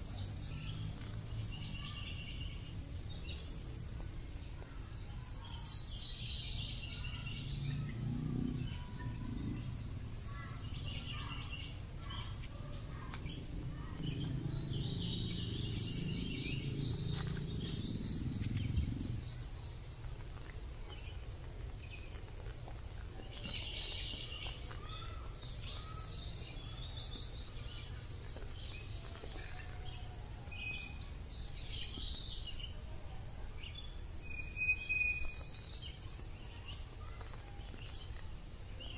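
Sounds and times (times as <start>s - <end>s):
birds chirping and calling: 0.0s - 38.9s
low rumble: 13.2s - 20.1s.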